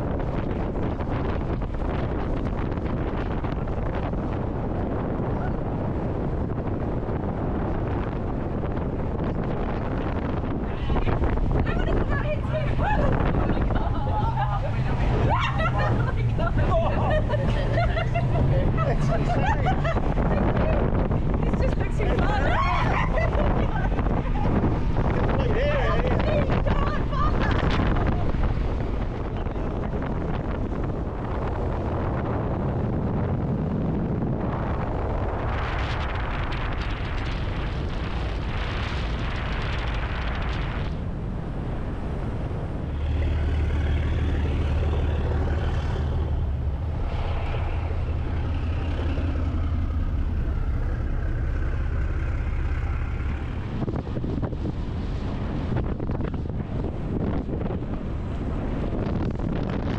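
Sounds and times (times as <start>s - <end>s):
boat engine droning: 0.0s - 59.9s
water noise: 0.0s - 59.9s
wind rushing on microphone: 0.0s - 59.9s.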